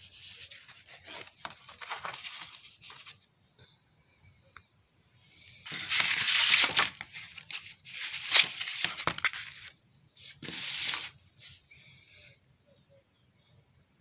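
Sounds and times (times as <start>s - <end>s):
stiff paper pages rustling: 0.0s - 3.3s, 5.6s - 11.6s.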